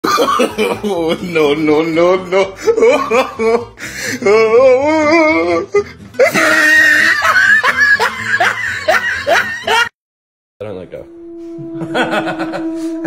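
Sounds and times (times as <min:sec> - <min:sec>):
loud hearty laughter: 0:00.0 - 0:03.7, 0:06.2 - 0:09.9, 0:11.8 - 0:12.9.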